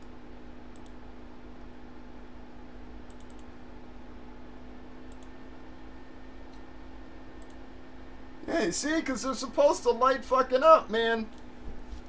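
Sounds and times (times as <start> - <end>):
steady low hum: 0.0 - 12.0
faint clicks: 3.0 - 3.5.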